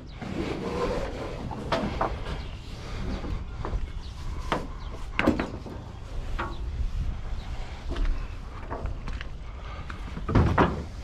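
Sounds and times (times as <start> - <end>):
sharp knocks and clunks: 4.5 - 6.6, 10.2 - 11.0.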